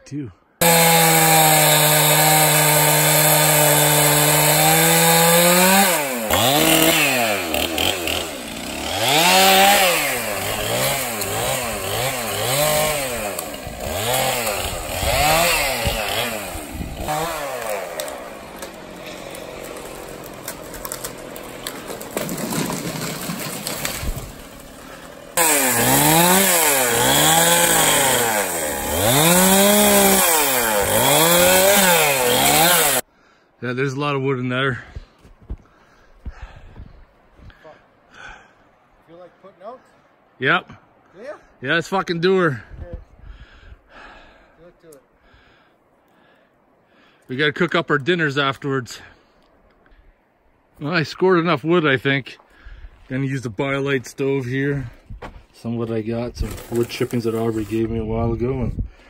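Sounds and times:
chainsaw cutting log: 0.6s - 33.1s, 55.9s - 58.0s.

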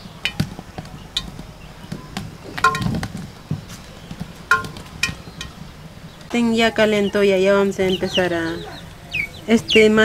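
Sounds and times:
wood fire crackling: 0.0s - 10.0s.

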